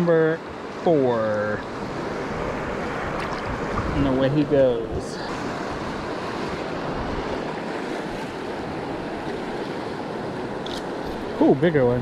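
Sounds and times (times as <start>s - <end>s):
river rushing: 0.0s - 12.0s
wind rumble on microphone: 1.6s - 12.0s.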